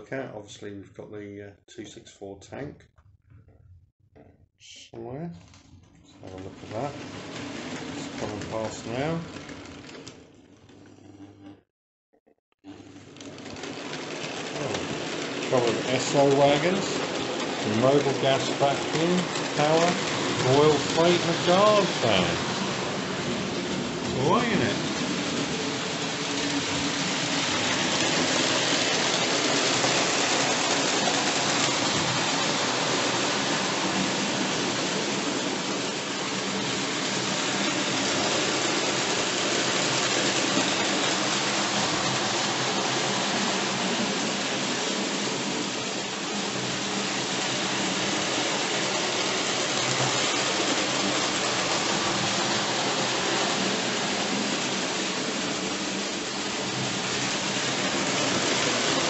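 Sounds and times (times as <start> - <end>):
model train wheels rattling: 6.2 - 10.8, 13.0 - 59.0.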